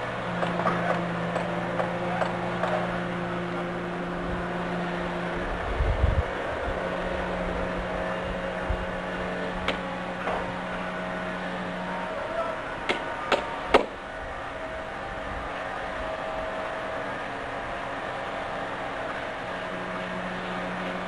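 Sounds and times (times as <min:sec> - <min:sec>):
machinery humming: 0:00.0 - 0:21.0
sharp knocks: 0:12.9 - 0:14.0.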